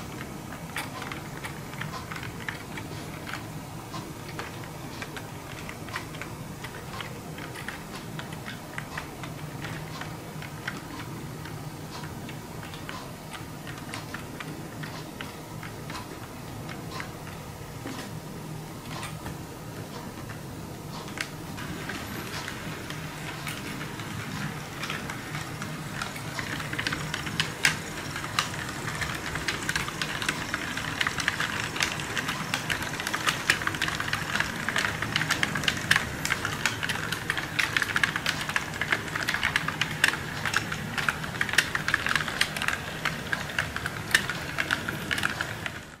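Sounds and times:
electric motor hum and whine: 0.0 - 46.0
small metal wheels clicking over rails: 21.1 - 46.0.

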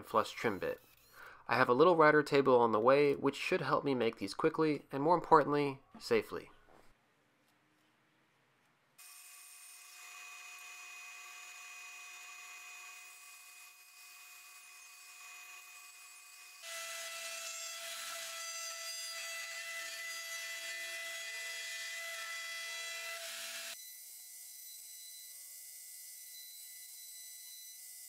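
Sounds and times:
bandsaw whining: 9.0 - 25.4
router cutting wood: 9.0 - 28.0.

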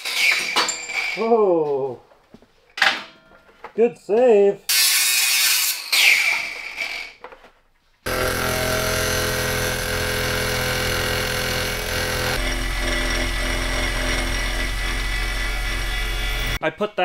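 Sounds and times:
milling machine cutting metal: 8.1 - 16.6.

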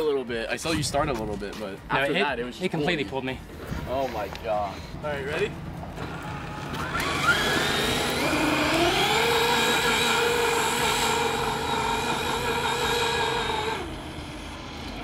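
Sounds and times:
electric motor whining: 6.0 - 15.0.

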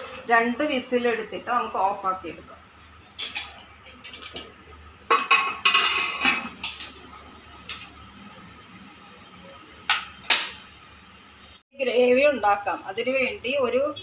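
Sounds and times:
metal lid clattering on a pot: 5.1 - 6.9.

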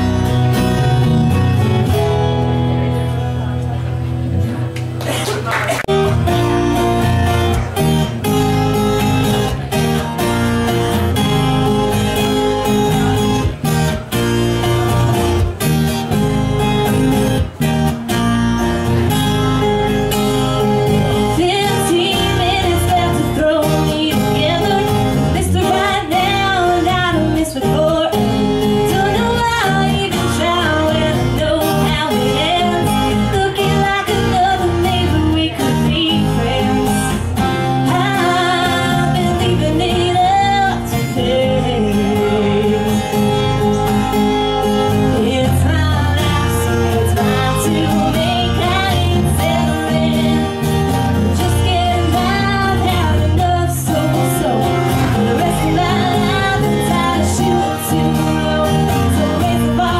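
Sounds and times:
guitar-backed song: 0.0 - 59.9
person singing: 20.6 - 59.9.

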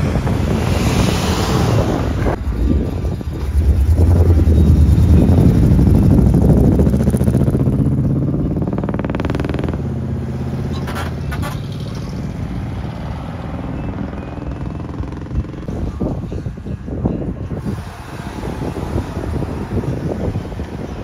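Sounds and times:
vehicle engine running: 2.3 - 16.1.

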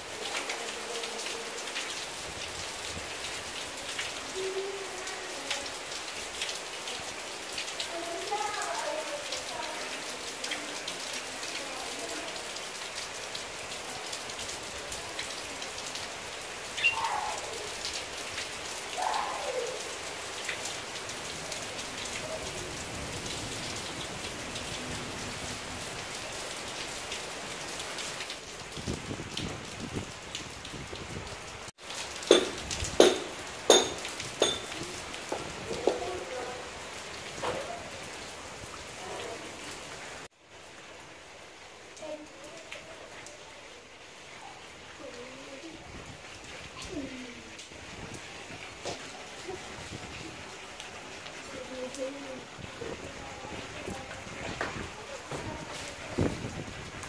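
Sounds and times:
steady rain falling: 0.0 - 57.0
sharp knocks and splashes: 32.0 - 36.1.

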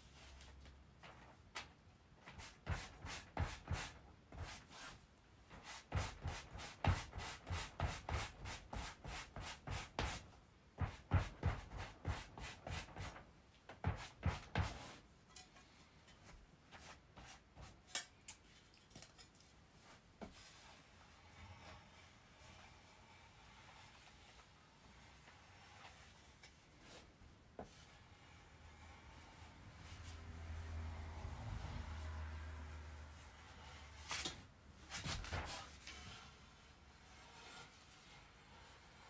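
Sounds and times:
faint handling sounds: 14.8 - 30.2.

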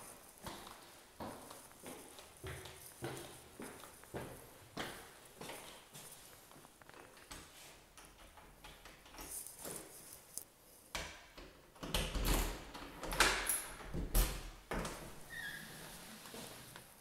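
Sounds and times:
key rattling in door lock: 11.8 - 14.4.

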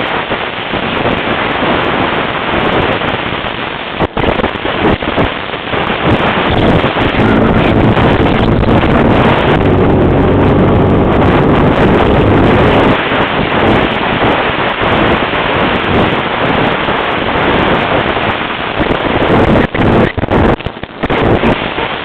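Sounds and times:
wind buffeting microphone: 0.0 - 22.0
atv engine running: 6.5 - 13.9.

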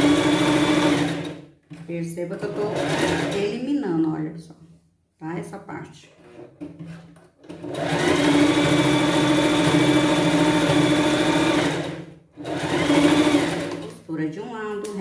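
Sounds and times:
sewing machine humming: 0.0 - 1.5, 2.6 - 3.5, 7.4 - 13.9.

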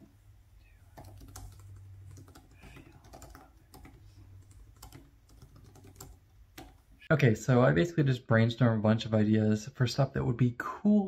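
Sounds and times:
typing on laptop keyboard: 0.9 - 6.9.

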